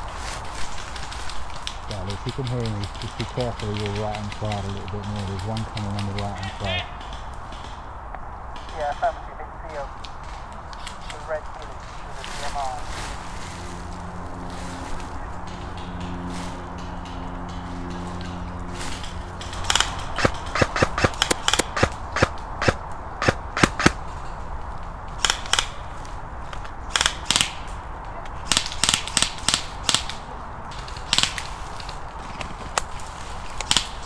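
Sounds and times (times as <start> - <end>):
airsoft gun firing single shots: 19.7 - 24.0.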